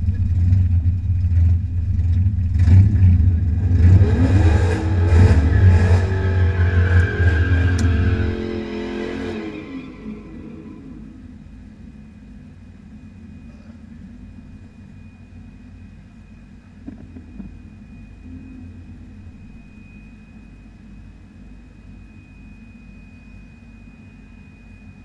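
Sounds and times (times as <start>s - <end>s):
race car engine idling: 0.0s - 8.7s
faint high whine: 0.0s - 25.0s.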